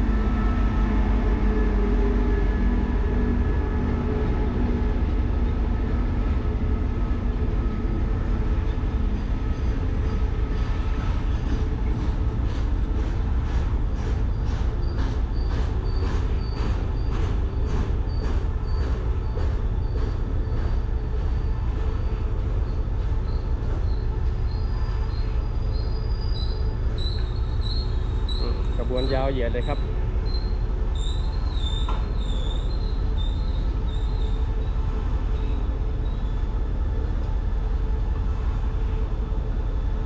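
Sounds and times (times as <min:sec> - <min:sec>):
diesel locomotive engine hum: 0:00.0 - 0:40.0
high wheel squeal: 0:18.1 - 0:36.5.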